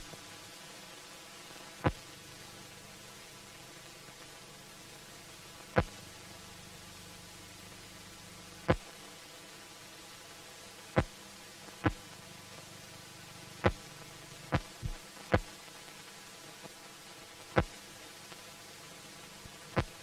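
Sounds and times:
low steady hum: 10.0s - 15.6s.

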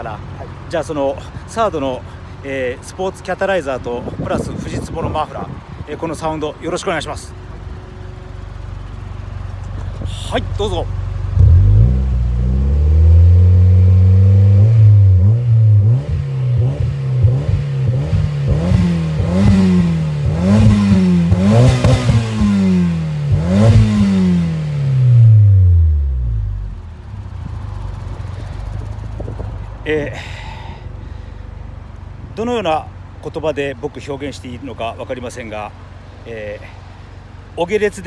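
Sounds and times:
car engine revving: 10.8s - 29.4s.

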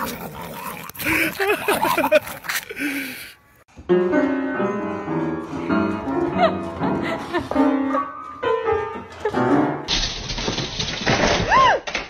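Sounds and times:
piano notes: 3.7s - 9.9s.

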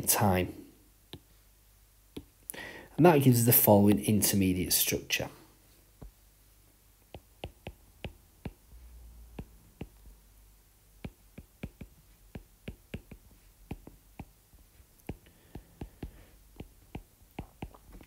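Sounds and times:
stylus tapping on glass screen: 7.1s - 8.6s, 9.4s - 10.1s, 11.0s - 14.4s, 15.0s - 17.8s.

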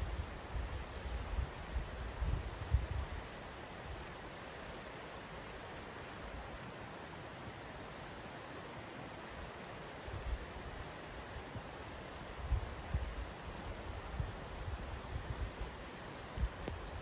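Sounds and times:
wind buffeting microphone: 0.0s - 3.2s, 12.3s - 15.7s.

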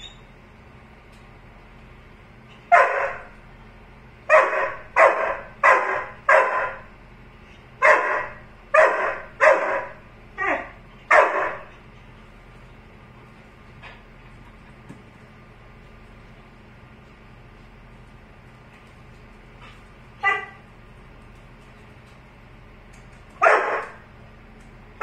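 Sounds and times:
dog barking: 2.7s - 3.4s, 4.3s - 6.9s, 7.8s - 11.8s, 20.2s - 20.6s, 23.4s - 24.0s.

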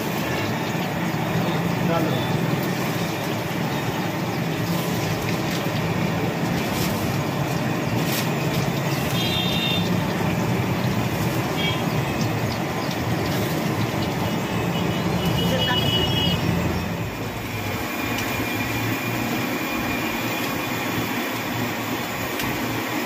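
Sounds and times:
food sizzling in hot oil: 0.0s - 23.0s.

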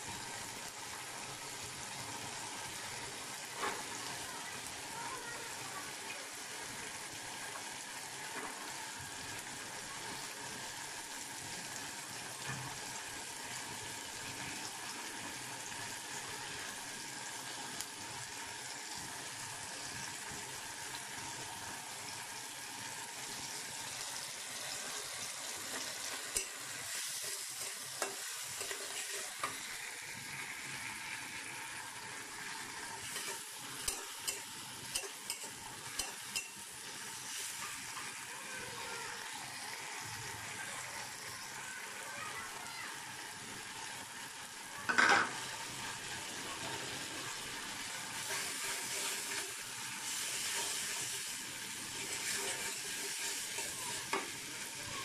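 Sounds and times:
chickpeas sizzling in oil: 0.0s - 55.0s
metal spatula scraping pan: 25.7s - 29.6s, 51.9s - 54.2s.

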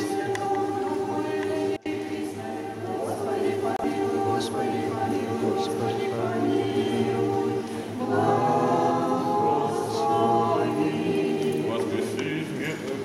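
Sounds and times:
group chanting a cappella: 0.0s - 13.0s.

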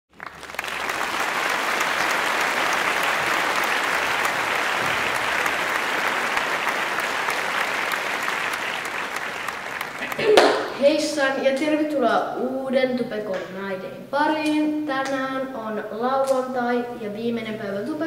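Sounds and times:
crowd applauding: 0.1s - 10.8s.

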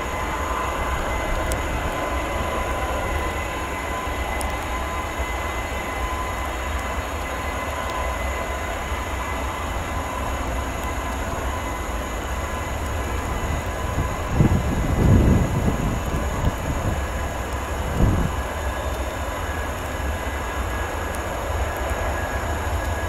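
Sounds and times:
distant jet engine rumble and hiss: 0.0s - 23.0s
high engine whine: 0.0s - 23.0s.

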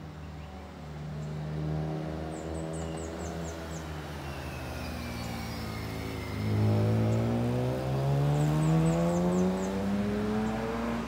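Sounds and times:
passing road traffic: 0.0s - 11.0s
motorcycle approaching: 0.6s - 11.0s
bird chirping: 2.2s - 11.0s.

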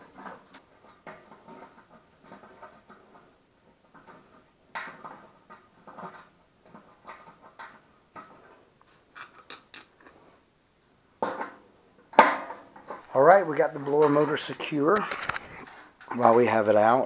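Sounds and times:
metal bracket clicks and scrapes: 4.9s - 10.2s, 13.8s - 16.2s.

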